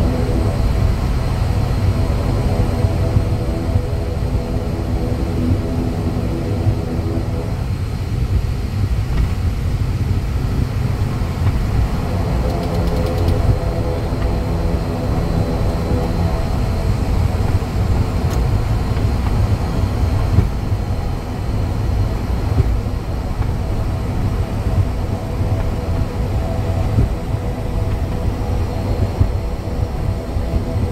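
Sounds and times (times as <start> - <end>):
turboprop engines rumbling: 0.0 - 30.9.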